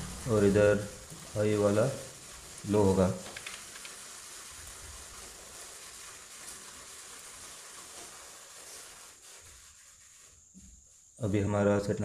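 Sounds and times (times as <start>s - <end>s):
low steady hiss: 0.0s - 12.0s.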